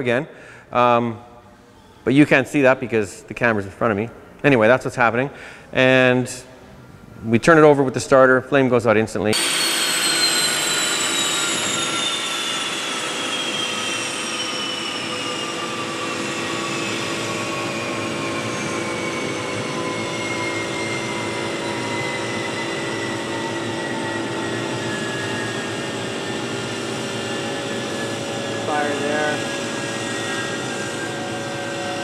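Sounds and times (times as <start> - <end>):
steady hum: 9.3 - 32.0
turbofan engine spooling down: 9.3 - 32.0.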